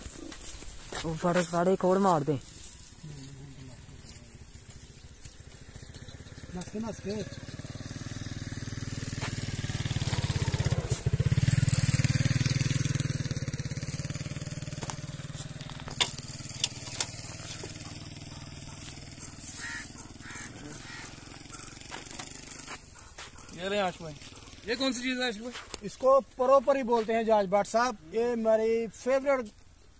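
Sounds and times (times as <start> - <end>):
motorcycle engine idling: 2.8 - 25.3.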